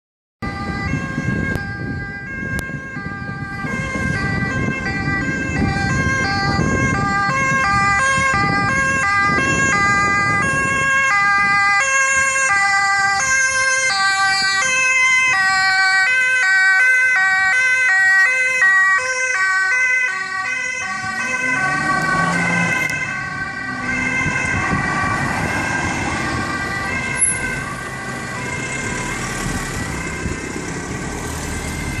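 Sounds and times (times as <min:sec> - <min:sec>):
ambulance two-tone siren: 0:00.4 - 0:32.0.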